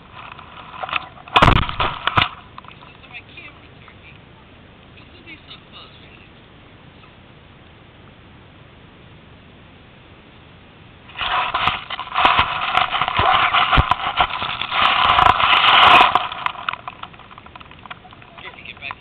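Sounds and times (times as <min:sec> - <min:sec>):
scraping and crackling on microphone: 0:00.0 - 0:04.0, 0:11.1 - 0:19.0.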